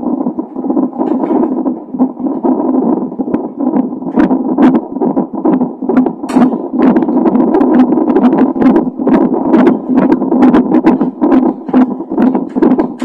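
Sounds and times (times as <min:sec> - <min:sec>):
pulsing heartbeat whoosh: 0:00.0 - 0:13.0
sharp clicks: 0:05.4 - 0:07.0.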